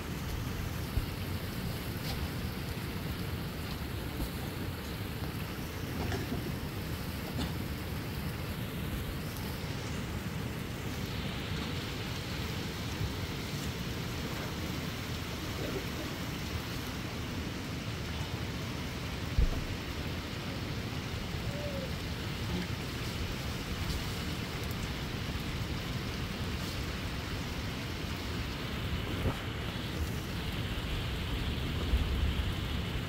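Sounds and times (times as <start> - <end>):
wind rumble on microphone: 0.0 - 7.5, 19.2 - 20.4, 21.0 - 33.0
faint hiss: 0.0 - 33.0.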